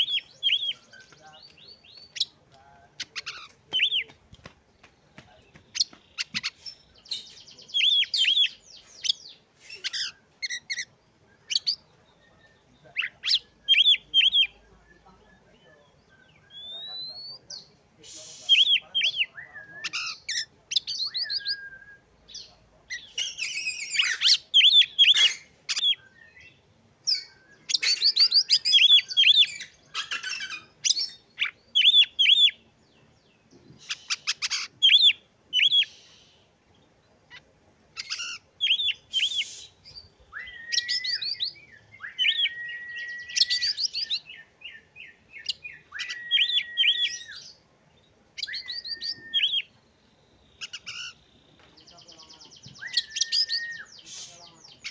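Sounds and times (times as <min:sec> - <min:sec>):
songbird whistling and trilling: 0:00.0 - 0:02.3, 0:05.8 - 0:12.3, 0:13.0 - 0:15.0, 0:16.1 - 0:17.4, 0:18.2 - 0:32.6, 0:33.8 - 0:36.3, 0:38.0 - 0:47.6, 0:48.4 - 0:49.8, 0:52.4 - 0:54.9.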